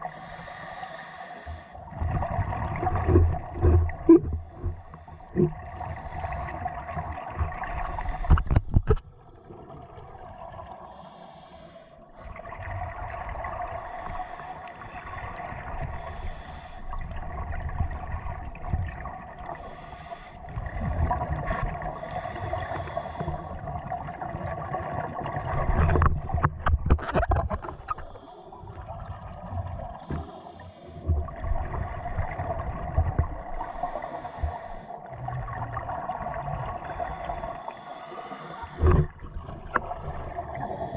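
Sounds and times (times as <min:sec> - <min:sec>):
regulator breath hiss: 0:00.0 - 0:01.8, 0:10.9 - 0:12.0, 0:16.0 - 0:16.8, 0:19.6 - 0:20.4, 0:22.0 - 0:23.5, 0:30.0 - 0:31.0, 0:33.6 - 0:35.0, 0:36.9 - 0:39.0
exhaled bubbles gurgling: 0:01.8 - 0:11.3, 0:12.1 - 0:40.9.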